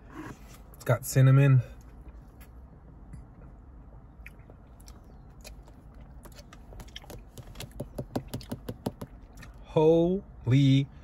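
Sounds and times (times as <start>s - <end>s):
chewing mouth sounds: 3.9s - 9.6s.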